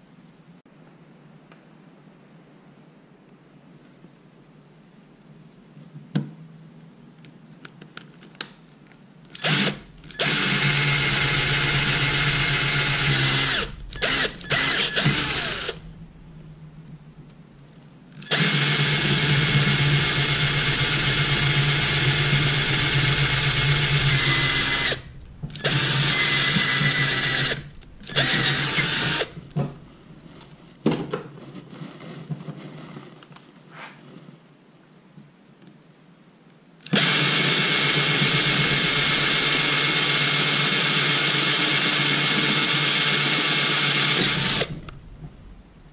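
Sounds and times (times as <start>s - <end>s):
drill trigger blips: 9.3s - 15.9s, 18.2s - 29.6s, 36.9s - 45.1s
cordless drill boring metal: 9.3s - 16.0s, 18.2s - 29.6s, 36.9s - 45.1s.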